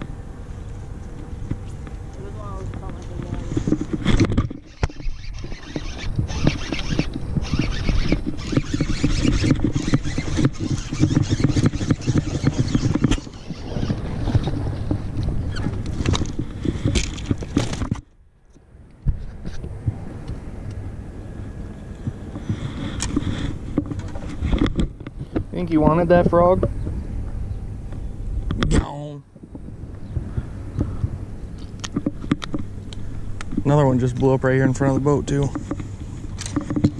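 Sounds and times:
water noise: 0:00.0 - 0:18.0
boat motor: 0:00.0 - 0:36.9.

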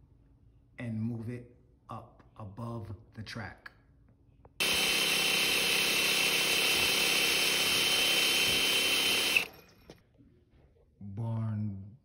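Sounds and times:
electric drill boring through steel: 0:04.6 - 0:09.6.

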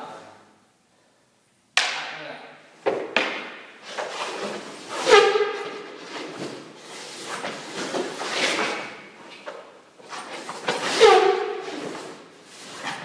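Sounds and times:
skates and stick scraping on ice: 0:03.8 - 0:13.0.

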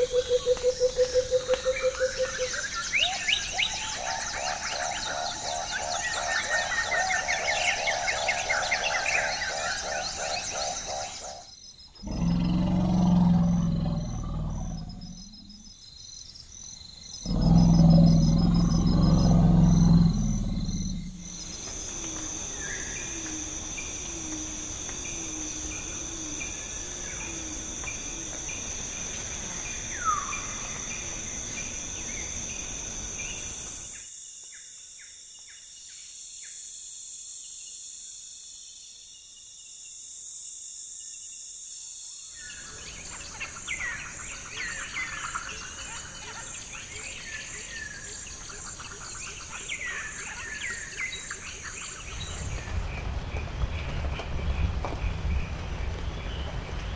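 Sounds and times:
bird calls: 0:00.0 - 0:15.7
fast insect trills: 0:00.0 - 0:54.1
high-pitched insect chorus: 0:00.0 - 0:56.9.

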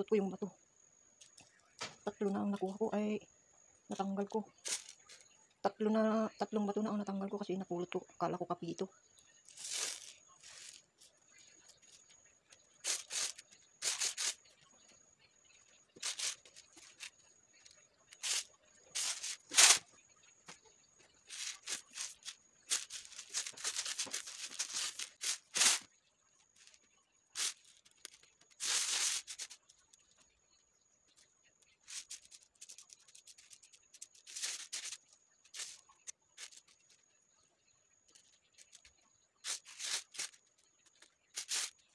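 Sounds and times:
coffee beans rattling in tray: 0:04.6 - 0:05.3, 0:09.5 - 0:11.2, 0:12.8 - 0:14.5, 0:16.0 - 0:17.2, 0:18.2 - 0:19.8, 0:21.3 - 0:25.9, 0:27.4 - 0:29.7, 0:31.9 - 0:35.8, 0:36.4 - 0:36.9, 0:38.6 - 0:41.8.

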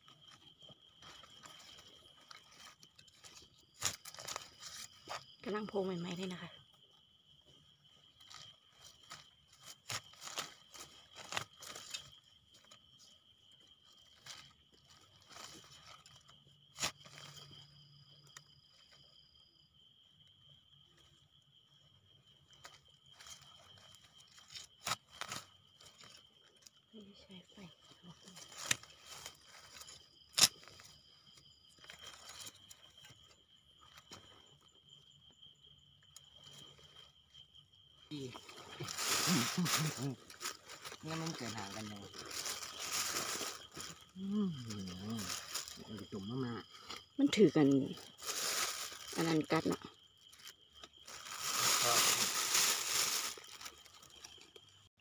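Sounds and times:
digging in leaf litter: 0:00.0 - 0:06.4, 0:08.0 - 0:17.6, 0:22.5 - 0:34.6, 0:38.0 - 0:54.8
mushrooms plucked from soil: 0:00.0 - 0:06.4, 0:22.6 - 0:34.6, 0:38.0 - 0:54.8
high insect trill: 0:00.0 - 0:55.0.

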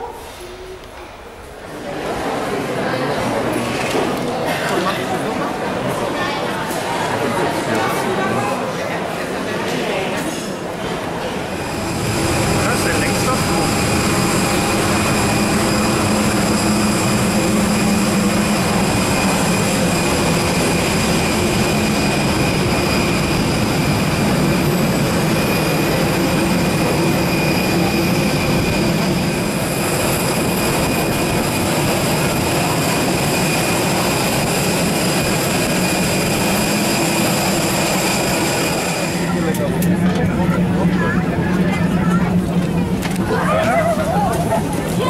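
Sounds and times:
jet turbines whining: 0:10.6 - 0:45.0.

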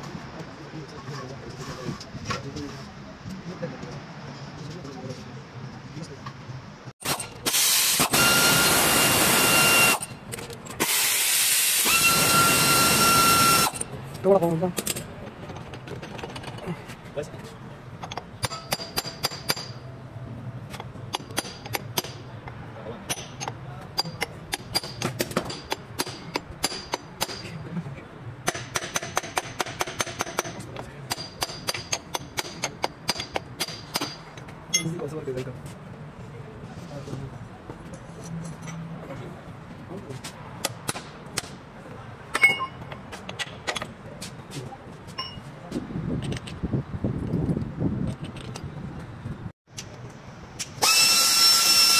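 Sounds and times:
air motor high whine: 0:07.0 - 0:10.2, 0:10.8 - 0:13.8, 0:50.7 - 0:51.9
air ratchet exhaust hiss: 0:07.4 - 0:10.0, 0:10.8 - 0:12.7
hammer striking steel bar: 0:18.4 - 0:19.8, 0:23.1 - 0:27.5, 0:28.4 - 0:34.9.

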